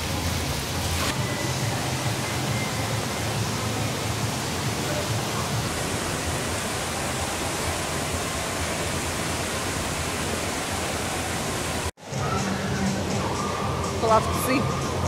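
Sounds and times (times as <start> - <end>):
water pouring into shallow pool: 0.0 - 11.9.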